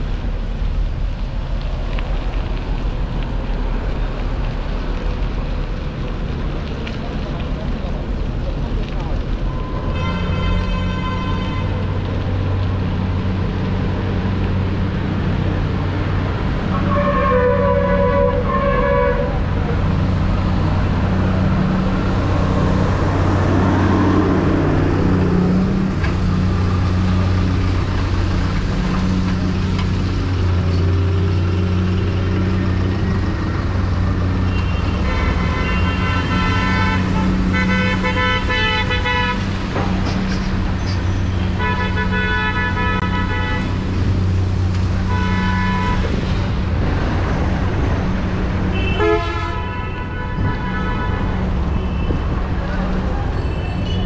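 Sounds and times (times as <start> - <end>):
vehicle horns honking: 9.7 - 11.8, 16.8 - 19.3, 34.5 - 39.4, 48.7 - 52.2.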